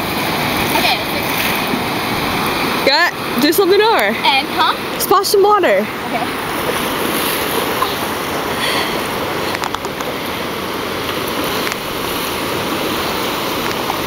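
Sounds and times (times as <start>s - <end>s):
ocean surf washing ashore: 0.0s - 14.0s
feet splashing in shallow water: 5.9s - 14.0s.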